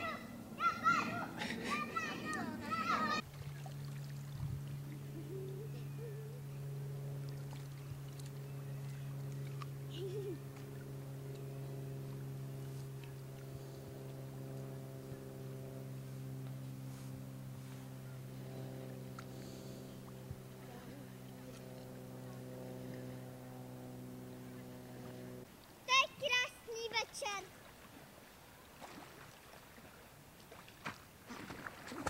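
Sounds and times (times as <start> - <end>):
low hum of held tones: 0.0 - 32.0
higher tones: 4.8 - 7.2.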